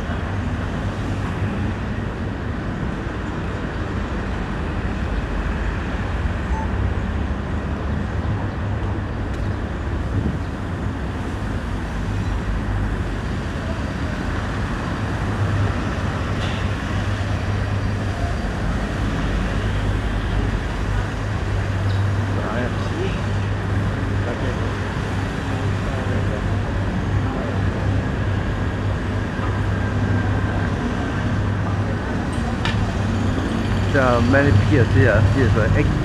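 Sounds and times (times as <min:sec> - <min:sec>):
low traffic rumble: 0:00.0 - 0:36.0.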